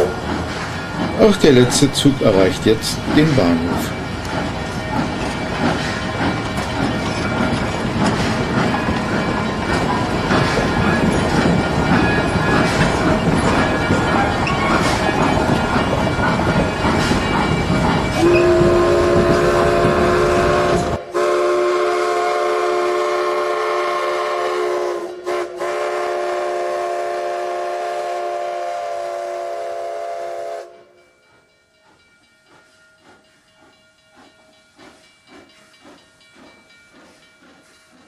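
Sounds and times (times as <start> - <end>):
steam locomotive chime whistle: 0.0 - 7.8, 17.4 - 31.4
steam train rolling: 0.0 - 38.0.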